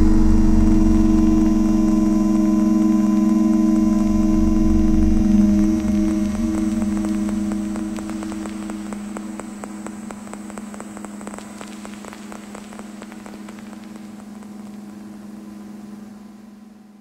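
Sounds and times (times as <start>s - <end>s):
low synth drone: 0.0s - 10.8s
crackle of clicks: 5.6s - 15.3s.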